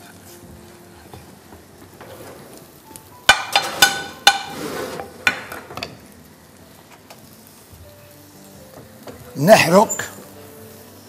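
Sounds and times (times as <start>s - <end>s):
spoon and bowl clanking on pot: 3.3s - 4.6s.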